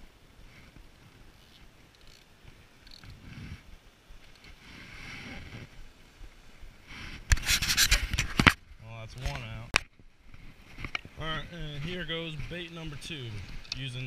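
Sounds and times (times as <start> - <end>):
faint wind: 0.0 - 14.0
fishing reel ticks: 1.4 - 3.1.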